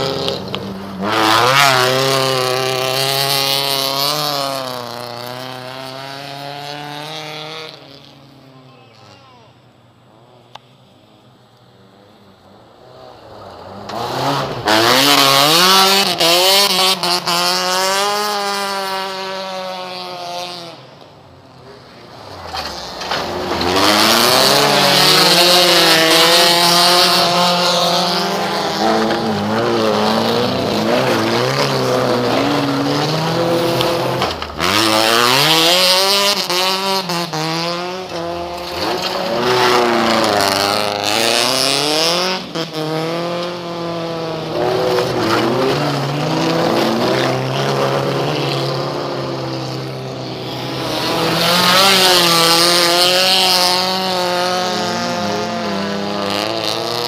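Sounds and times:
race car engines revving: 0.0 - 57.0.

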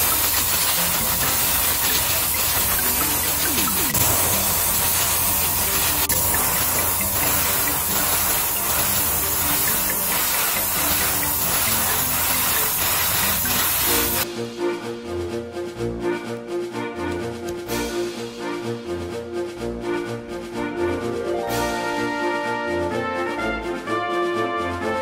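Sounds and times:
airbrush spraying hiss: 0.0 - 14.2
music: 0.0 - 25.0.

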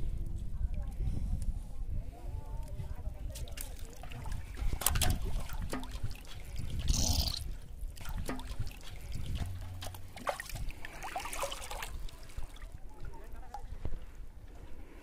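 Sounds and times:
water trickling and splashing: 3.2 - 14.3.

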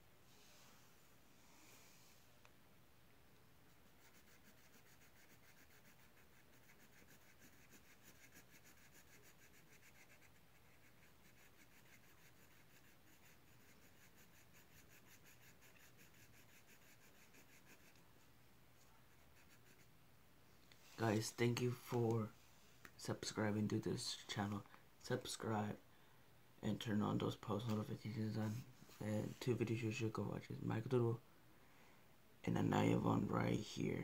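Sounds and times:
pen scratching on paper: 3.8 - 18.0, 19.1 - 19.9.

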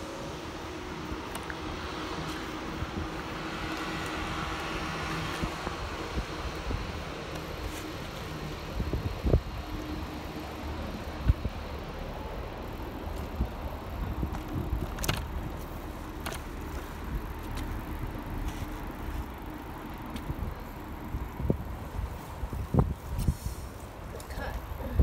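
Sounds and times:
bicycle rolling over paving: 1.0 - 23.9
bike basket rattling: 12.6 - 22.2.

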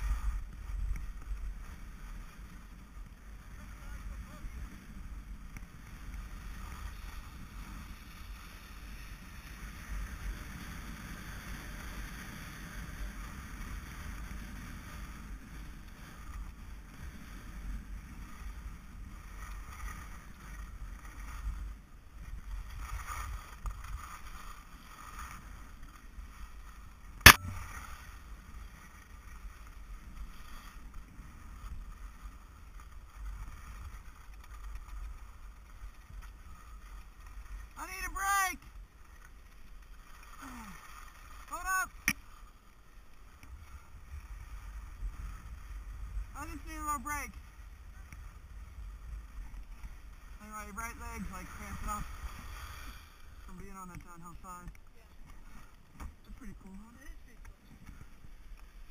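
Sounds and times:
skis swishing over snow: 0.0 - 58.9
sharp knock: 27.3 - 27.7.

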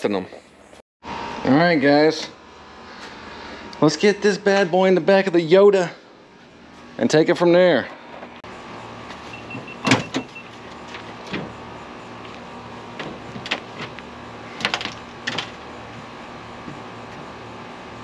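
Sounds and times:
steady low hum: 0.0 - 18.0
tailgate dropping open with a clunk: 9.4 - 11.6
person climbing into truck bed: 12.9 - 17.3.

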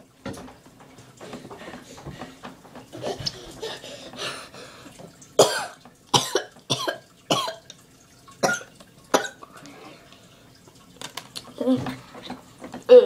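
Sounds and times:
boy coughing: 5.4 - 7.6.

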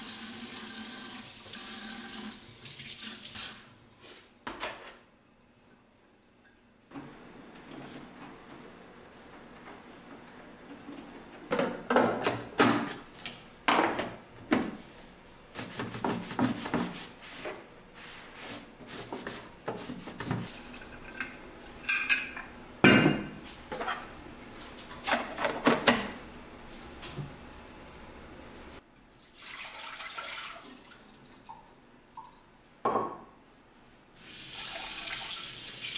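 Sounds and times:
cloth rubbing on coffee machine: 15.5 - 20.5.

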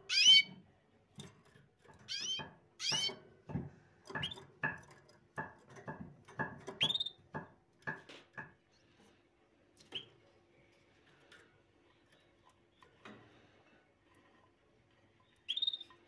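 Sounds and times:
small bird chirping: 0.0 - 0.5, 2.1 - 3.1, 6.8 - 7.2, 15.2 - 16.0.

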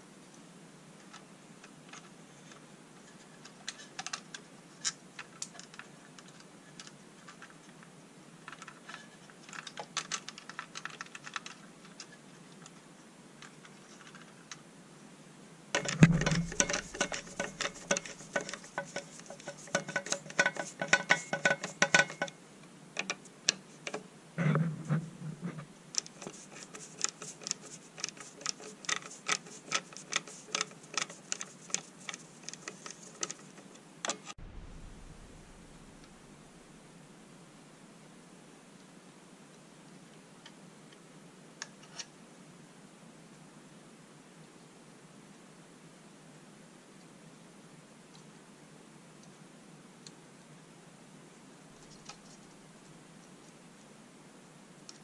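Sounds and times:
hand tools clicking and knocking: 15.8 - 22.4, 26.0 - 34.3
screwdriver clicking on screws: 26.0 - 33.4
low bumps: 34.4 - 36.9.

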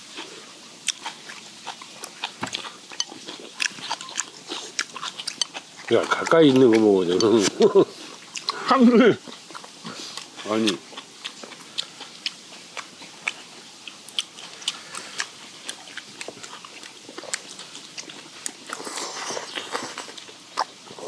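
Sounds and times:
food crunching: 0.0 - 21.0
mouth smacks while chewing: 0.1 - 21.0
slurp: 18.7 - 21.0.

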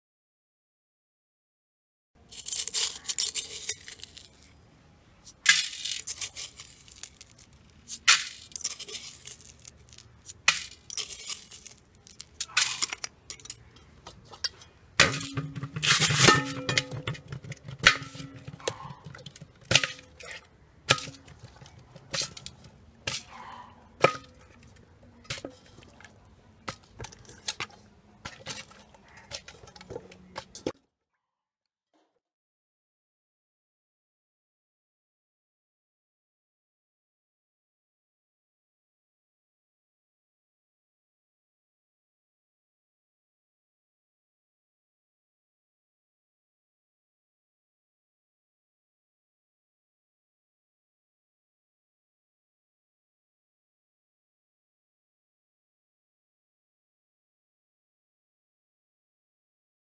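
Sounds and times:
gritty scraping of fish: 2.3 - 4.6, 5.2 - 19.6
metal pans clinking: 12.4 - 23.3, 24.0 - 26.0.

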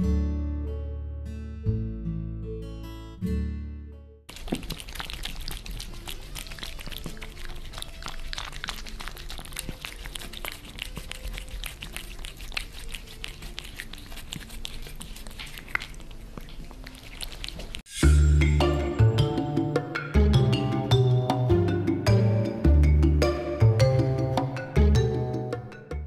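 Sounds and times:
cat licking: 4.3 - 17.9.

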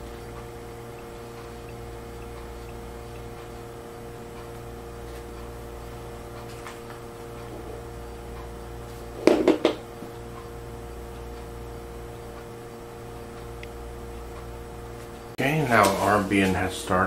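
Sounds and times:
electrical hum: 0.0 - 17.0
loud knocks: 9.2 - 9.9.

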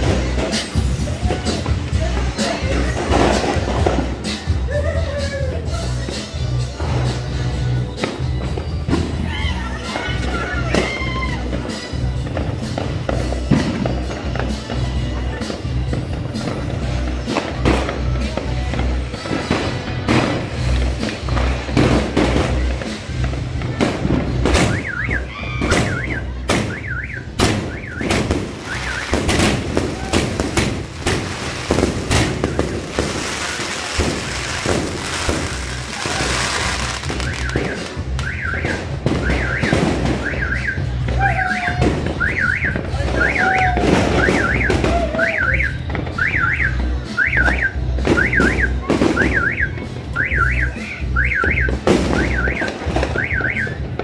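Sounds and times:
firecrackers banging: 0.0 - 4.7, 6.0 - 54.0
music with bass beat: 0.0 - 54.0
car alarm chirping: 24.6 - 29.2, 37.2 - 41.0, 42.1 - 43.5, 44.1 - 53.9.

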